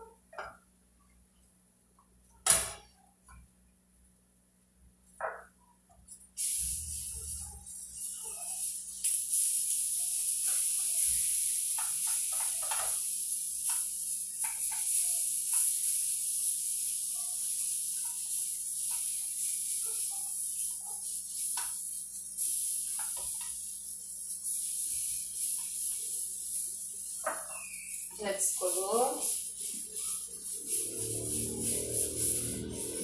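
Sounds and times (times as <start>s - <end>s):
pancake sizzling in hot oil: 6.1s - 33.0s
wooden spatula scraping a pan: 24.4s - 33.0s.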